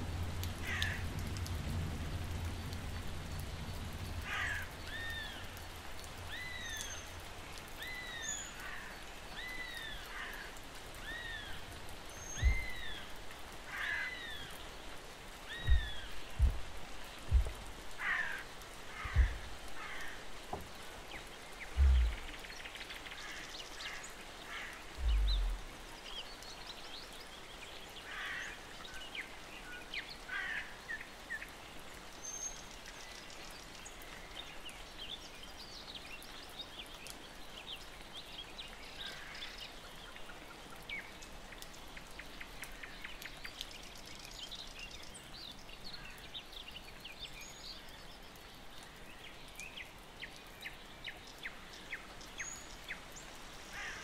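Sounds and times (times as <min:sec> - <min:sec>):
faint steady hiss: 0:00.0 - 0:54.0
bird calls and chirps: 0:11.0 - 0:13.1, 0:15.4 - 0:18.4, 0:21.0 - 0:24.2, 0:25.0 - 0:30.2
dull low thump: 0:12.4 - 0:12.8, 0:15.6 - 0:17.8, 0:19.0 - 0:19.5, 0:21.8 - 0:22.3, 0:25.0 - 0:25.7.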